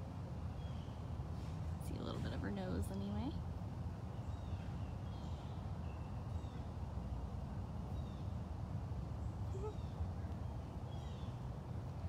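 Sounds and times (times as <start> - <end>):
faint bird chirps: 9.2 - 11.5
faint bird call: 9.4 - 10.2.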